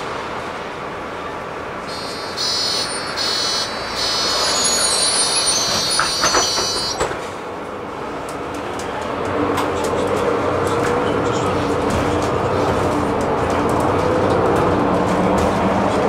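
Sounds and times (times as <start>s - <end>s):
bus running noise: 0.0s - 16.0s
high-pitched squeal: 1.9s - 7.2s.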